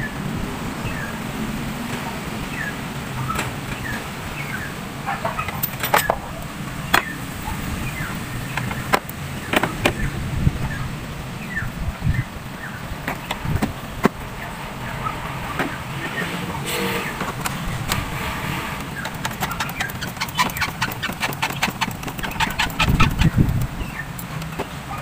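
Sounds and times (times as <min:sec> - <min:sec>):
bird chirps: 0:06.8 - 0:13.5, 0:18.8 - 0:24.2.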